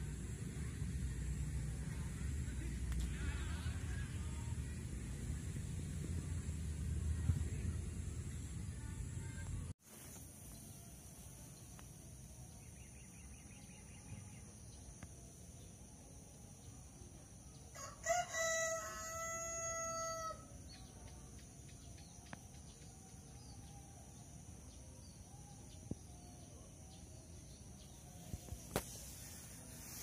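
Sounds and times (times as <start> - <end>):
high-pitched hiss: 0.0 - 14.0, 27.8 - 30.0
rooster crowing: 17.7 - 20.5.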